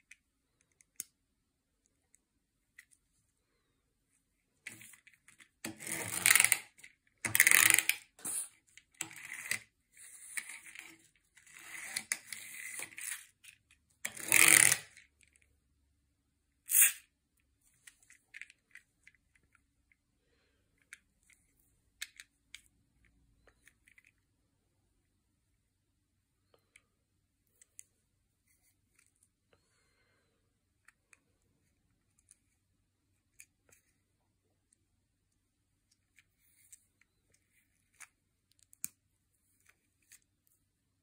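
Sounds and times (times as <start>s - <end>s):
plastic toys rattling: 4.7s - 8.1s.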